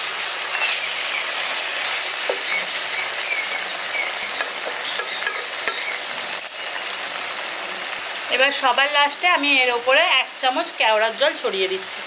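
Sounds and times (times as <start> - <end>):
gravy simmering and sizzling: 0.0 - 12.0.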